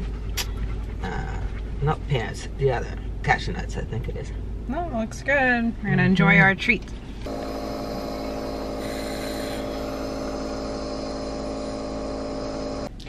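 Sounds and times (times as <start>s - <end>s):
air compressor humming: 7.2s - 12.9s.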